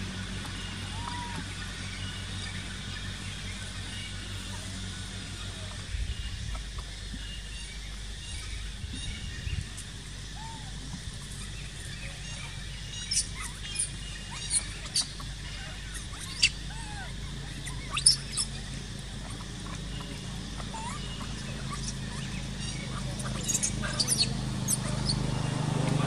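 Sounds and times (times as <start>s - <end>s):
faint gliding calls: 0.0s - 26.0s
low outdoor hum: 0.0s - 26.0s
animal squeaks and chirps: 12.1s - 26.0s.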